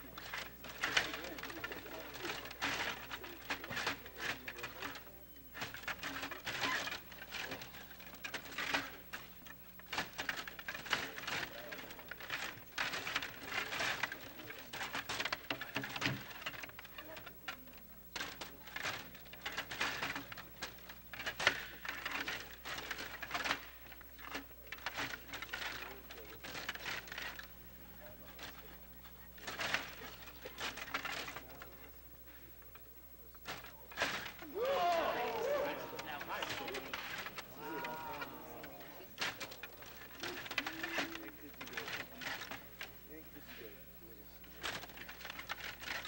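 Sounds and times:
table hockey rods clattering: 0.0 - 17.5, 18.1 - 27.6, 29.4 - 31.9, 32.6 - 43.6, 44.5 - 46.0
plastic players knocking: 33.4 - 43.0.

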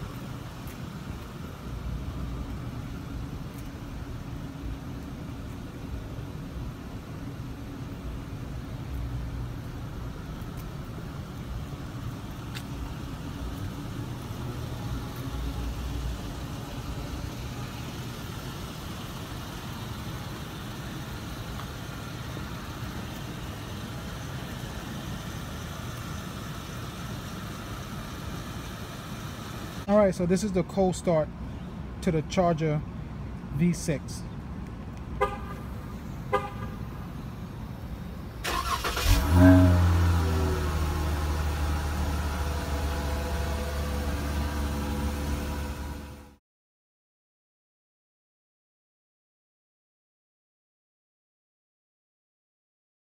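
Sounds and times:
car engine idling: 0.0 - 29.9, 35.2 - 46.3.

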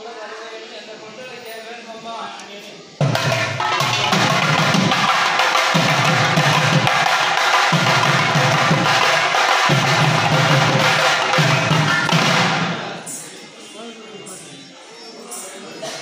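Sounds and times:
deep drum strokes: 3.0 - 13.0
drums beaten fast: 3.0 - 13.2.

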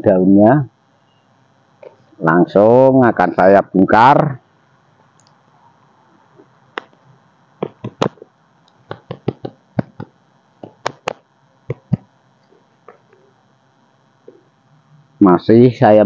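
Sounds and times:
sharp clicks and knocks: 7.6 - 12.1.

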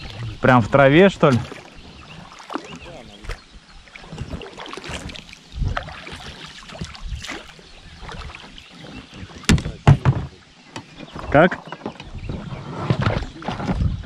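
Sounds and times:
water sloshing: 0.0 - 14.0
knocks on boat hull: 9.4 - 10.9.

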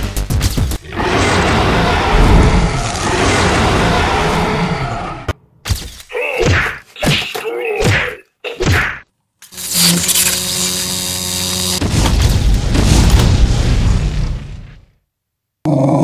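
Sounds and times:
rushing fire-breath blast: 0.8 - 5.3
cartoon whacks: 5.6 - 9.1
steady buzzing hum: 9.5 - 12.2
groan falling in pitch: 15.6 - 16.0.

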